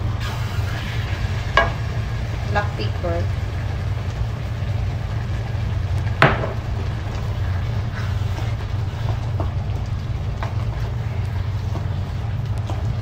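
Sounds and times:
steady low hum: 0:00.0 - 0:13.0
wooden spoon stirring meat in pan: 0:06.1 - 0:13.0.

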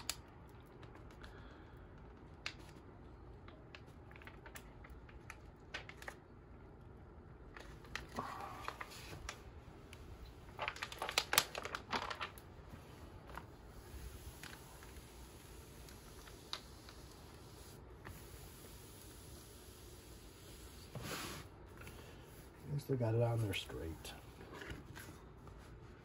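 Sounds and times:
canvas crinkling and rustling: 0:07.5 - 0:15.0.

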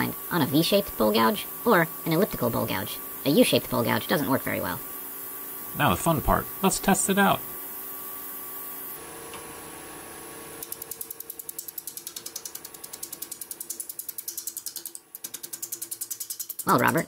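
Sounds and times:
wood lathe running: 0:00.0 - 0:07.8.

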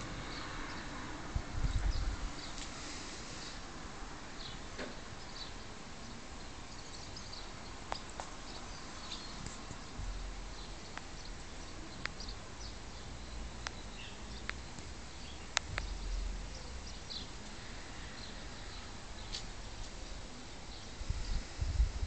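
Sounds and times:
steady low rumble: 0:00.0 - 0:02.6, 0:08.7 - 0:22.0
small birds chirping: 0:00.0 - 0:03.6, 0:04.4 - 0:21.8.

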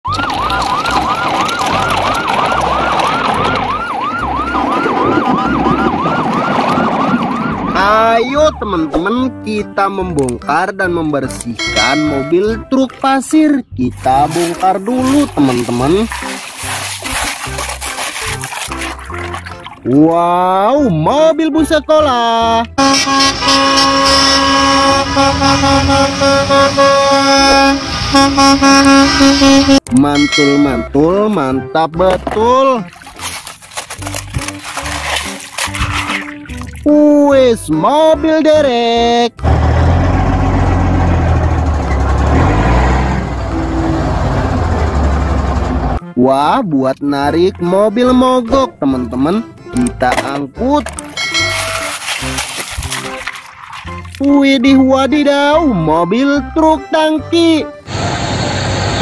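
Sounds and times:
fast yelping siren: 0:00.1 - 0:08.3
bus horns honking: 0:11.6 - 0:12.4, 0:22.8 - 0:30.9, 0:39.4 - 0:46.2
low engine rumble: 0:39.4 - 0:46.0.

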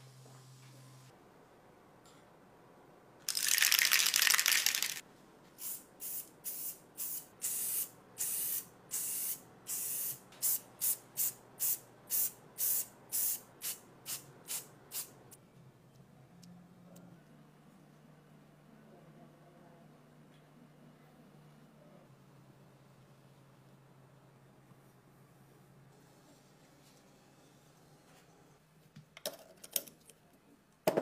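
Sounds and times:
spray-paint can spraying: 0:03.3 - 0:05.0, 0:05.6 - 0:15.1.

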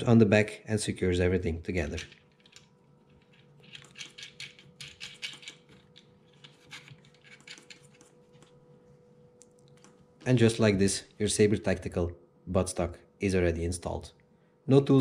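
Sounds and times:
metal nut clicking and scraping: 0:01.9 - 0:08.1.

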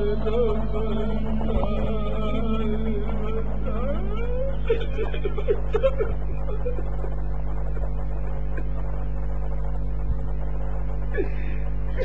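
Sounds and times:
faint voices: 0:00.0 - 0:09.1
electrical mains hum: 0:00.0 - 0:12.0.

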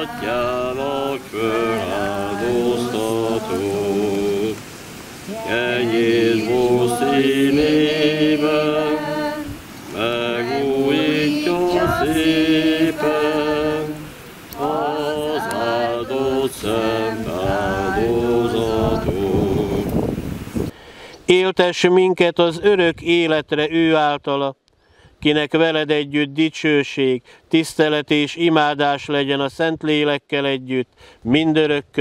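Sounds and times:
chanted liturgical singing: 0:00.0 - 0:04.6, 0:05.2 - 0:20.0.

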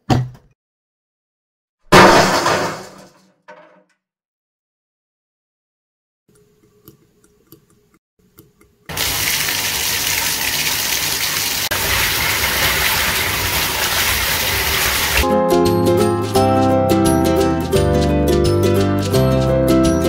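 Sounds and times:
water gushing: 0:08.9 - 0:15.2.

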